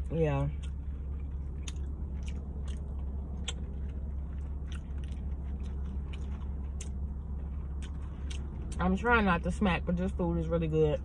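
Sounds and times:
steady low hum: 0.0 - 11.0
person chewing and lip-smacking: 0.5 - 8.8.

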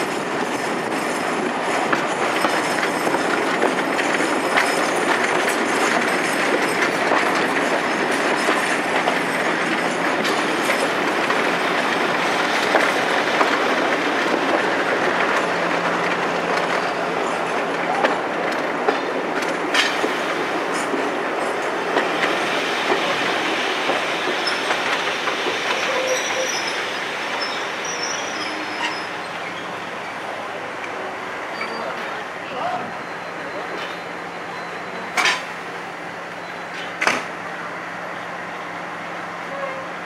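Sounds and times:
train wheels running on track: 0.0 - 40.0
rail-joint clicks: 0.1 - 29.8, 30.8 - 32.2, 33.6 - 35.6, 36.3 - 37.4
faint high wheel squeals: 25.7 - 29.9, 31.5 - 35.1.

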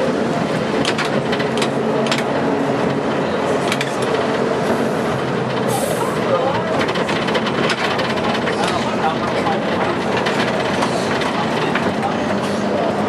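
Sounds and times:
tram wheels rumbling: 0.0 - 13.0
sharp clicks and rattles: 5.2 - 12.2.

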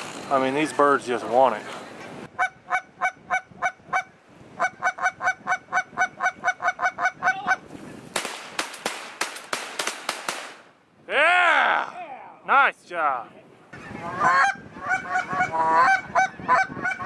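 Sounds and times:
goose call clucks: 2.4 - 7.6, 14.0 - 17.0
shotgun shots: 8.1 - 10.7.

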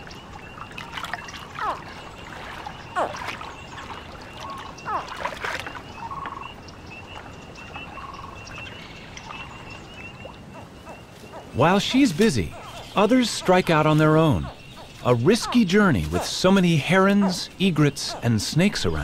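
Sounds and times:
water trickling: 0.0 - 10.6
alligator hatchlings chirping: 10.3 - 19.0.

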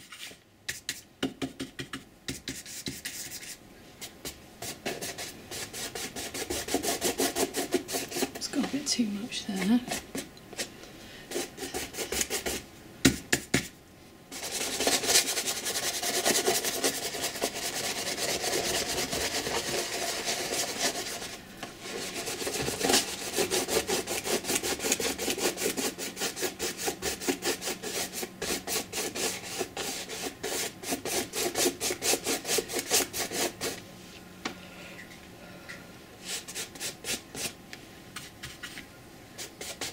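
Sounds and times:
bristle brush scrubbing canvas: 2.4 - 10.7, 14.3 - 33.8.

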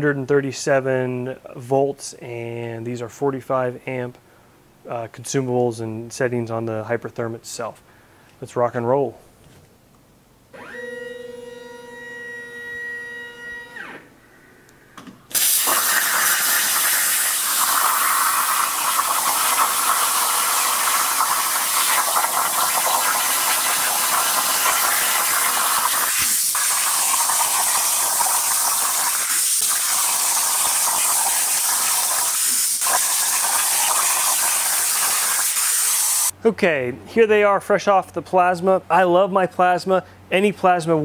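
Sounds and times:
plasma cutter hissing: 15.3 - 36.3.

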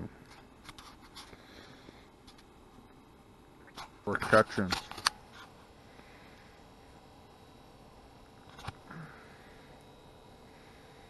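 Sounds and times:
soft handling rustles and clicks: 0.2 - 3.0.

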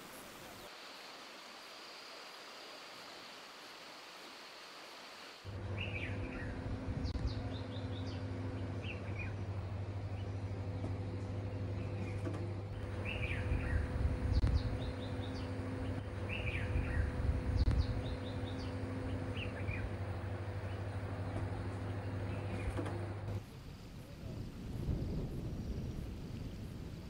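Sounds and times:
birds chirping: 5.4 - 23.9
steady low hum: 5.4 - 27.0
low rumbling: 5.5 - 27.0.

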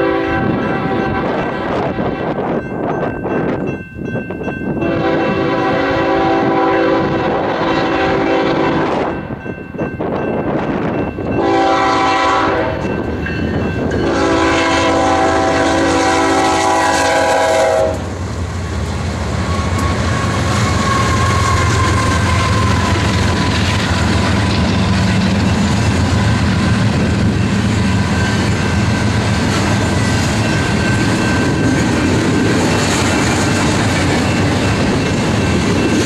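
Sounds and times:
locomotive air horn: 0.0 - 2.4, 4.9 - 9.0, 11.4 - 12.9, 14.0 - 18.1, 19.5 - 23.2.

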